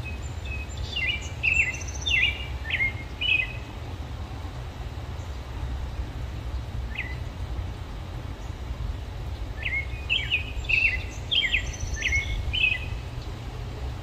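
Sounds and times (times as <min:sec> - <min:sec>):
bird chirping: 0:00.0 - 0:03.8, 0:06.5 - 0:07.4, 0:08.3 - 0:13.6
low background rumble: 0:00.0 - 0:14.0.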